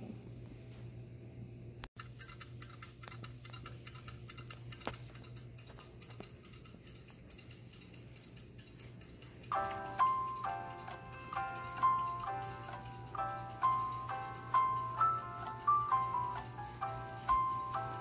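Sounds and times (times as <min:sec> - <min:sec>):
fast clock ticking: 0:02.0 - 0:18.0
chiming music notes: 0:09.5 - 0:18.0.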